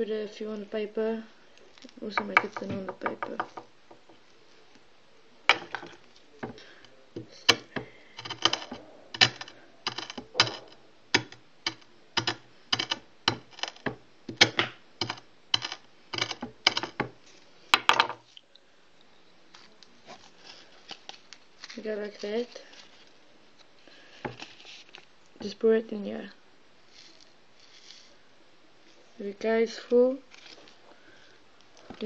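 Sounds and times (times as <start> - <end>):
tool handle tapping on tabletop: 2.2 - 4.1.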